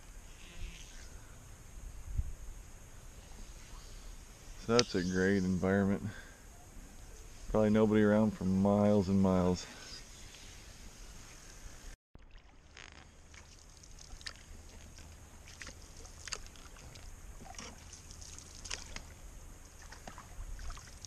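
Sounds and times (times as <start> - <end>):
paddle strokes in water: 12.2 - 21.0
water drips and splashes: 12.2 - 21.0.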